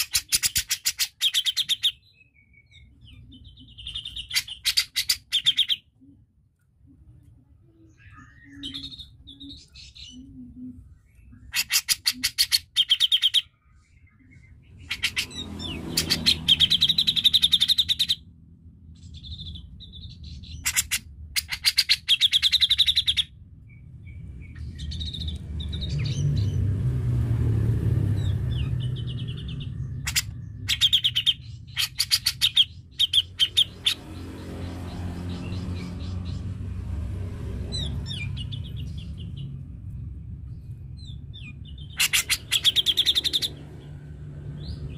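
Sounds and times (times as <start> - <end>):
bird singing rattling trills: 0.0 - 5.9, 10.9 - 18.3, 19.0 - 26.7, 28.1 - 36.6, 37.7 - 44.9
low rumble: 33.7 - 42.0.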